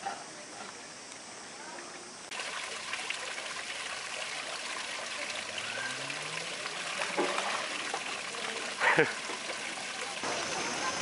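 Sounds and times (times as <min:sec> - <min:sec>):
water trickling: 0:02.3 - 0:11.0.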